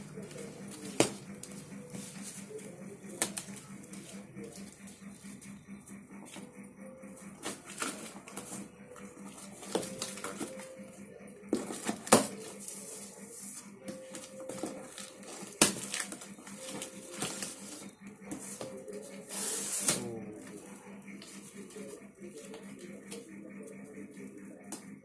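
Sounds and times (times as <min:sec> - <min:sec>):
crackling plastic and cardboard: 0:14.0 - 0:17.8.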